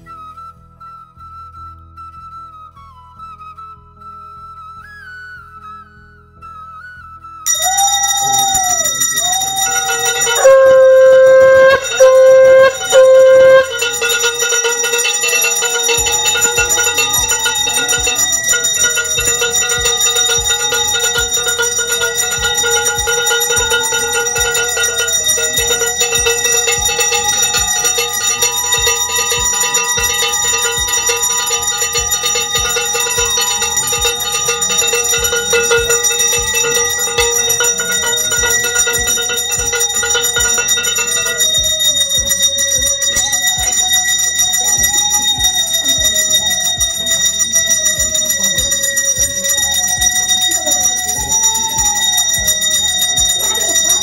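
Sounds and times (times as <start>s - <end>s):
conch shell blasts: 7.5s - 42.3s
hand bell ringing: 7.5s - 54.0s.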